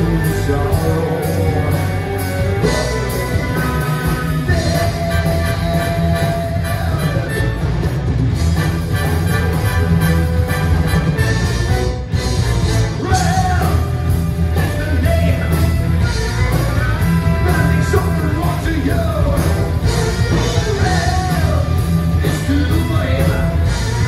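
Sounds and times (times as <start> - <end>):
person singing: 0.0 - 7.6, 16.4 - 24.0
heavy metal band playing: 0.0 - 24.0.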